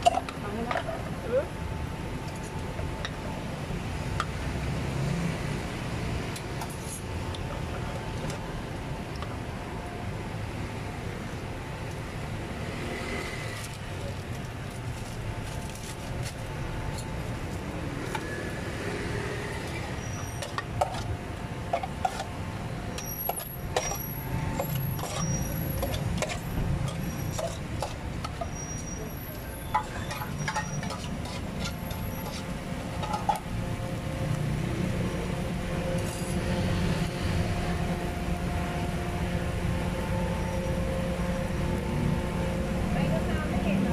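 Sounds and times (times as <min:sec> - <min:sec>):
traffic hum: 0:00.0 - 0:43.9
voices: 0:00.2 - 0:01.6, 0:42.9 - 0:43.9.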